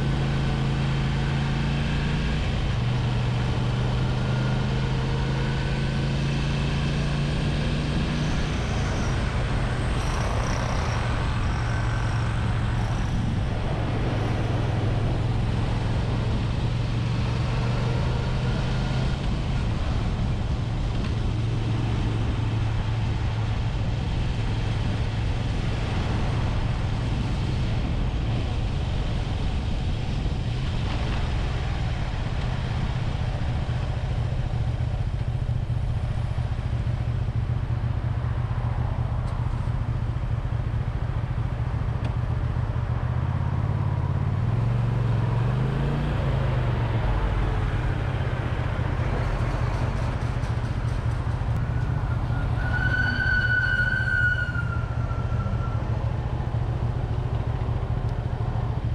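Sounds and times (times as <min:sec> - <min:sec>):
road and traffic noise: 0:00.0 - 0:58.9
motorcycle engine running: 0:46.8 - 0:52.3.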